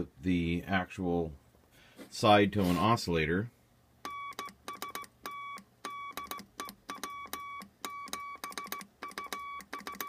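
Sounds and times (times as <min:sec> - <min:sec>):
morse code beeps: 0:04.1 - 0:10.0.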